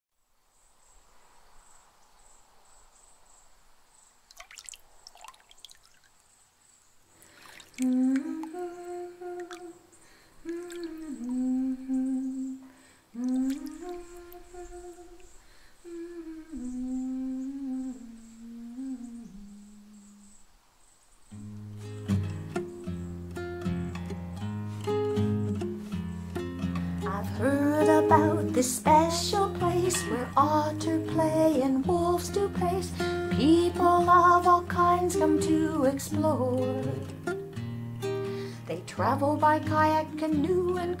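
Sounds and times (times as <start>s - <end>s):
faint background hiss: 0.1s - 41.0s
person humming a slow melody: 7.8s - 20.5s, 26.6s - 37.4s.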